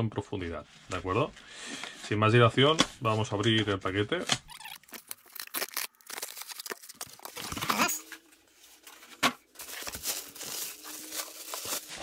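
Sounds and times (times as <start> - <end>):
cardboard tear strip ripping: 4.4 - 7.9
cardboard and plastic rustling: 4.9 - 12.0.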